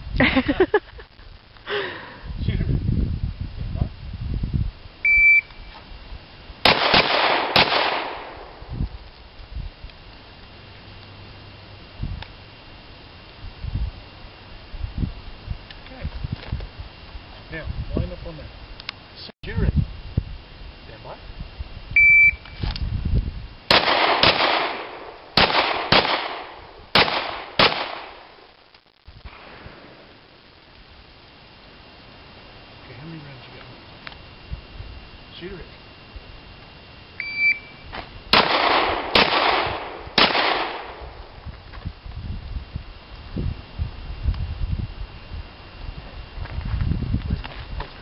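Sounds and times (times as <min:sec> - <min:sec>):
shot timer beep: 0:05.1 - 0:05.6, 0:22.0 - 0:22.6, 0:37.2 - 0:37.8
pistol shots with echo: 0:06.6 - 0:08.6, 0:23.7 - 0:28.2, 0:38.3 - 0:41.1.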